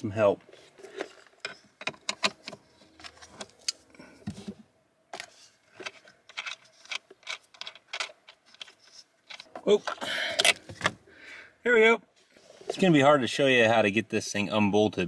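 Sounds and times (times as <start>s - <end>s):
metal clicks and scrapes of wrench: 5.2s - 10.6s.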